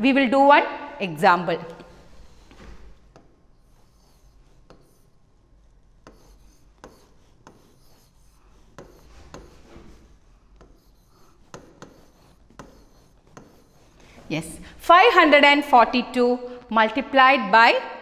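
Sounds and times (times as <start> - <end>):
stylus rubbing on glass: 1.7 - 15.3.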